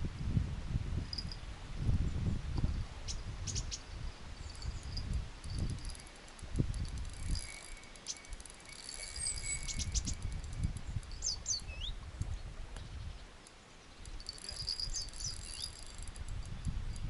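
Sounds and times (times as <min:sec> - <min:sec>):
wind rumbling on microphone: 0:00.0 - 0:13.4, 0:14.0 - 0:17.0
high sweeping bird calls: 0:03.1 - 0:05.0, 0:07.3 - 0:12.0, 0:12.8 - 0:16.0
small birds chirping: 0:03.1 - 0:06.1, 0:07.3 - 0:16.7.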